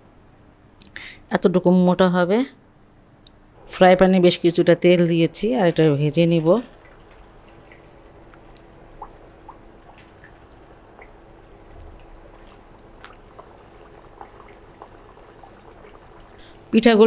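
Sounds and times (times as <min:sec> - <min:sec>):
faint steady hum: 0:00.0 - 0:17.0
food deep-frying in oil: 0:04.5 - 0:17.0
oil pops and crackles: 0:06.9 - 0:16.6.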